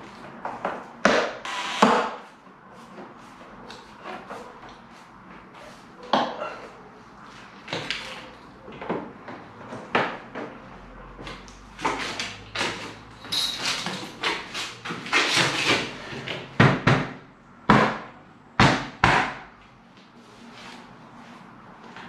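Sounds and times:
scraping and handling noise: 2.2 - 16.5, 19.9 - 22.0.

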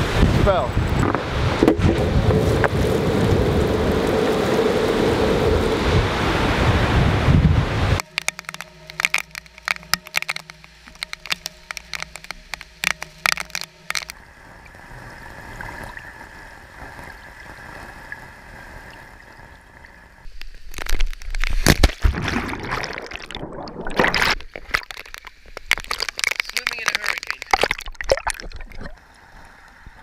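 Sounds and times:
water bubbling and sloshing: 7.6 - 30.0
rain drops ticking on camera: 8.0 - 14.2, 24.7 - 30.0.

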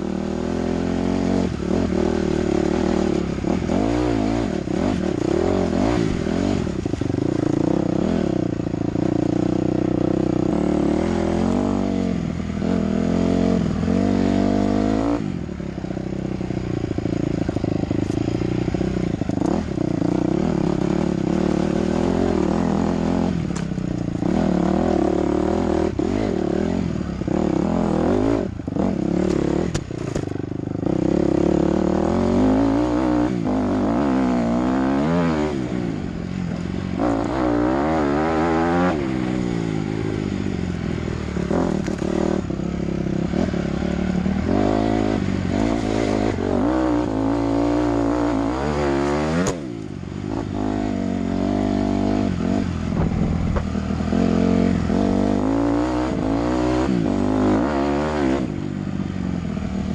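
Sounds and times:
dirt bike engine revving: 0.0 - 58.7
sharp knocks on rocks: 53.0 - 53.8.

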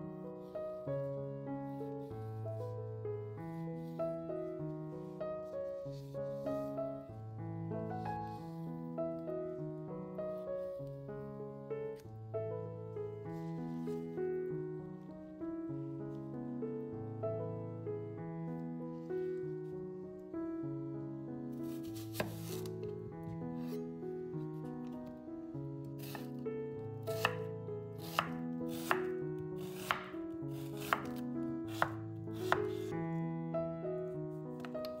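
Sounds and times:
piano music: 0.0 - 35.0
knife slicing onion on board: 22.0 - 22.7, 26.0 - 26.3, 27.1 - 32.9.

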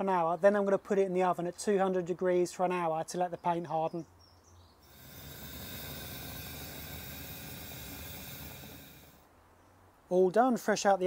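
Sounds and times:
steady hiss: 4.8 - 9.3.

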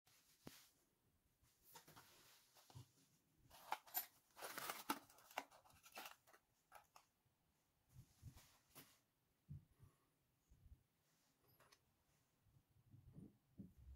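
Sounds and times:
cardboard box rustling: 3.5 - 6.9.

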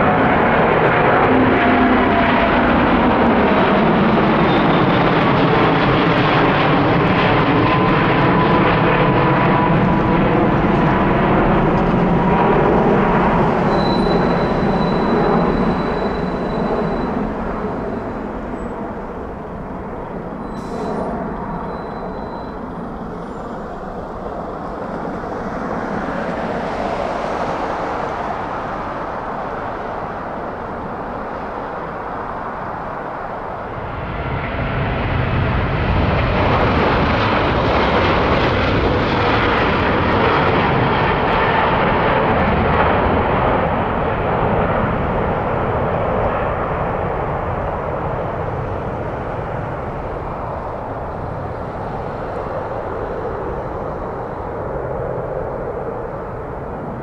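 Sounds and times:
airliner jet engines climbing: 0.0 - 57.0
jet rumble on takeoff: 0.0 - 57.0.

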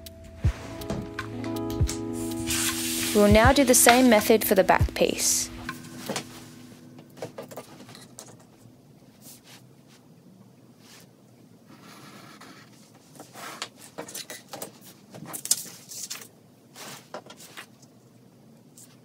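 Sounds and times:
paper rustling and sliding on table: 2.4 - 4.3, 5.6 - 6.8, 15.2 - 17.7.

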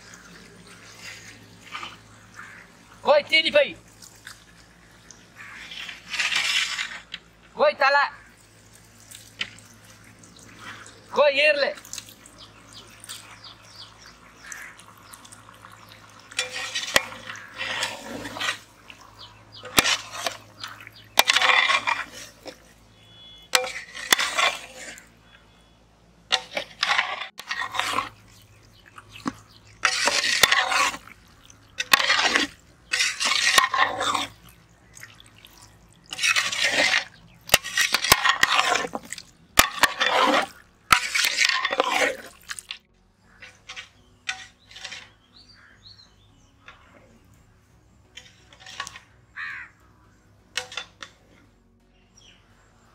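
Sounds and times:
spoon stirring thick wet mixture: 0.0 - 3.0, 11.7 - 25.4, 26.3 - 47.0, 48.1 - 49.7.

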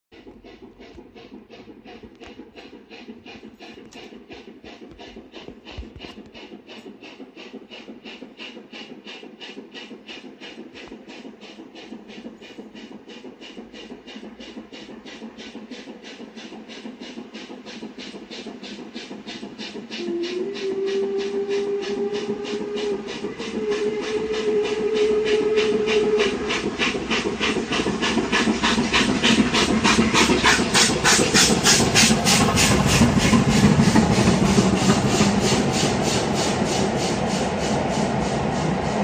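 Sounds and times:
steam locomotive chuffing: 0.1 - 39.0
steam whistle: 20.0 - 26.5.

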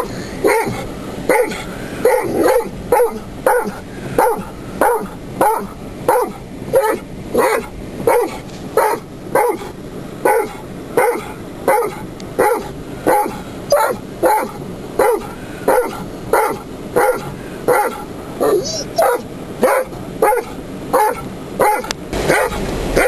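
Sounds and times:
dog barking: 0.0 - 23.0.

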